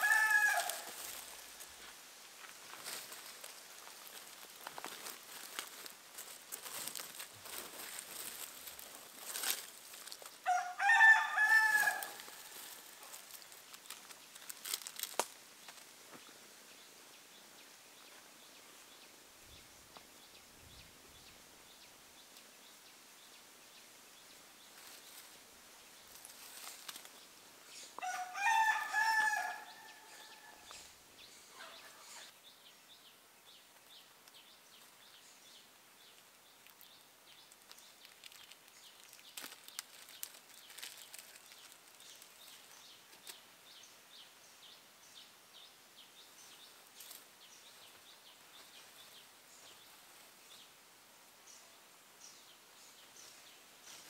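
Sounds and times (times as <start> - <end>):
rooster crowing: 0.0 - 1.1, 10.4 - 12.6, 28.0 - 30.7.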